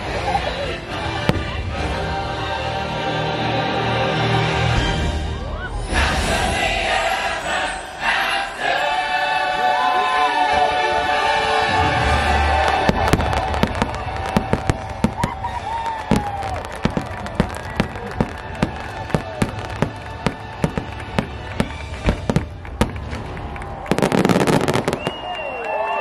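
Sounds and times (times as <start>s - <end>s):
fireworks exploding: 11.8s - 25.9s.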